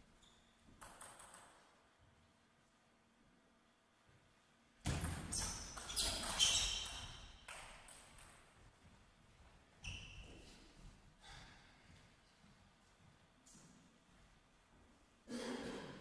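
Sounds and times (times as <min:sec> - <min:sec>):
table tennis ball bouncing: 0:00.7 - 0:01.8, 0:04.8 - 0:08.5.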